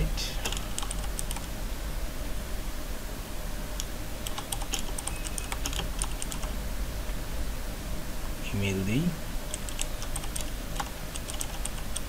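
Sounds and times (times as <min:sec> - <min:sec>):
steady low hum: 0:00.0 - 0:12.0
computer keyboard typing: 0:00.4 - 0:01.5, 0:04.2 - 0:06.5, 0:09.5 - 0:12.0.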